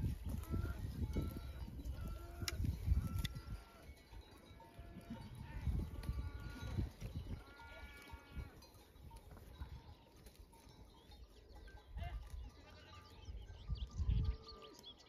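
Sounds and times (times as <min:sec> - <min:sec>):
livestock bleating: 0:00.3 - 0:04.0, 0:04.6 - 0:08.7, 0:12.0 - 0:13.2.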